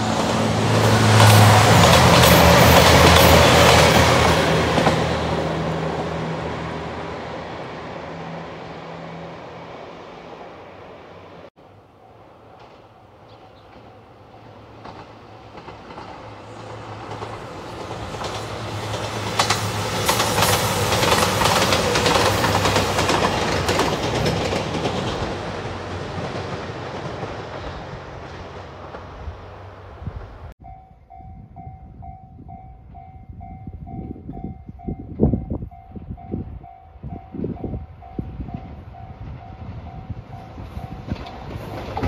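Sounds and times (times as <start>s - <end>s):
diesel train engines: 0.0s - 42.0s
train wheels clattering: 0.1s - 5.2s, 12.4s - 29.5s.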